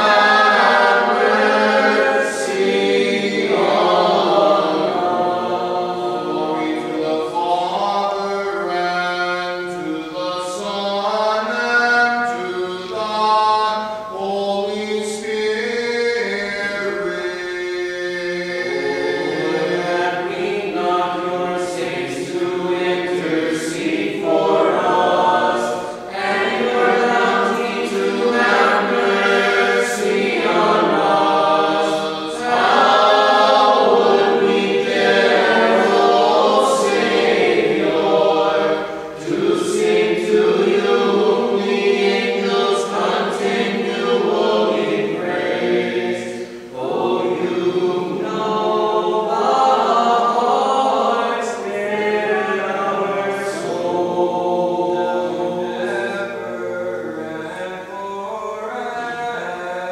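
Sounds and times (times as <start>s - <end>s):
group of voices chanting: 0.0s - 7.9s, 18.6s - 58.1s.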